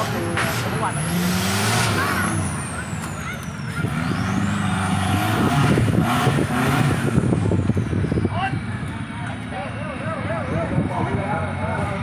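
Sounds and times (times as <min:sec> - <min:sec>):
engine revving hard: 0:00.0 - 0:08.0
mud and suspension clatter: 0:00.0 - 0:12.0.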